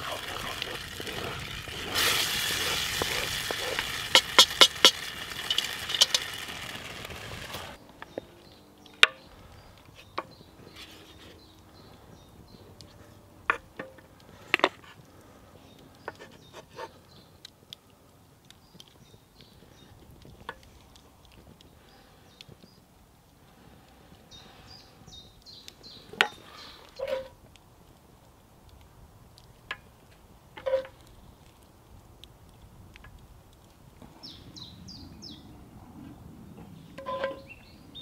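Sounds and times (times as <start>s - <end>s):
gravy bubbling and sizzling: 0.0s - 7.8s.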